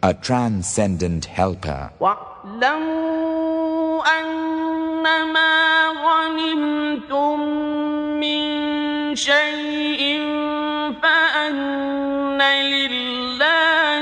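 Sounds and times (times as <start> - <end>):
man chanting melodically: 0.0 - 2.2.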